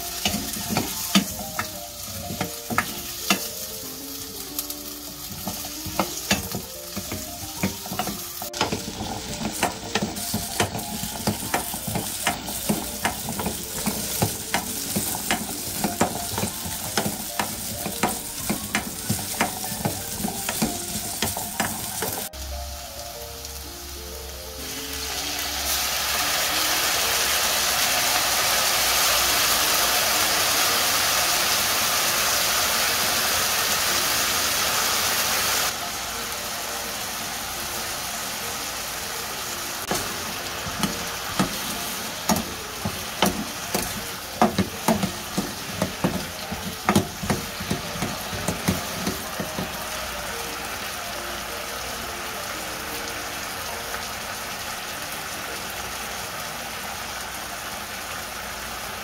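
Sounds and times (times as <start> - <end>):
potatoes sizzling in frying pan: 0.0 - 59.0
wooden spatula knocking on pan: 0.2 - 3.5, 5.3 - 22.3, 39.9 - 49.9.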